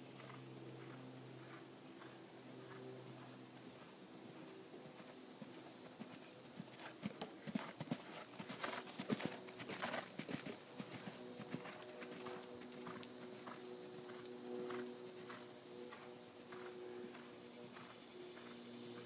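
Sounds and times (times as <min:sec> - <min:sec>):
horse hooves cantering on sand: 0:00.1 - 0:19.0.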